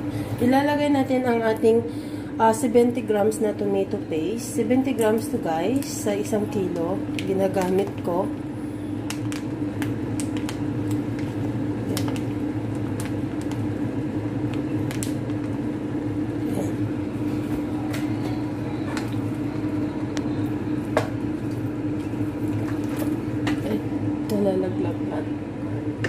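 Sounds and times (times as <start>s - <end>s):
steady low hum: 0.0s - 26.0s
crackles and pops: 9.0s - 16.1s.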